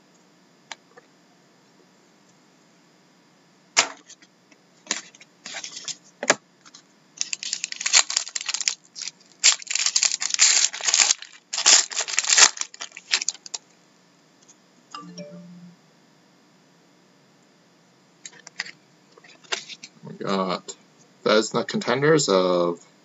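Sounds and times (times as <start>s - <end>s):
plastic wrapper tearing and crinkling: 7.2s - 13.6s.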